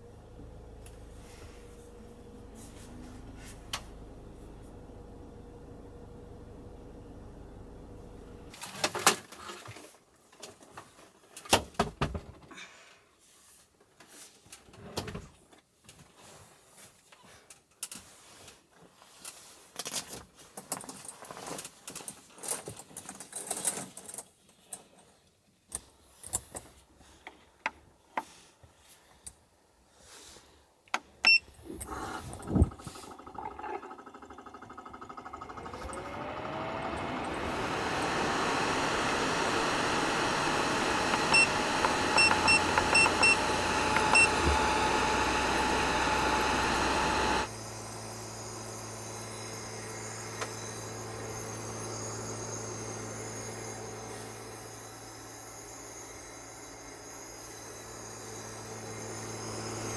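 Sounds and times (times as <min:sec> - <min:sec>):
engine rising whine: 0:00.0 - 0:08.5, 0:32.7 - 0:59.9
steady hum: 0:36.9 - 0:47.5.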